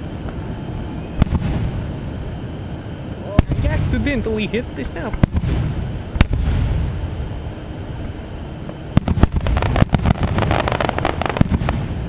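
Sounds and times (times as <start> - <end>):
fireworks bangs and crackles: 0.0 - 2.0, 3.3 - 7.2, 8.6 - 12.0
low rumble: 0.0 - 12.0.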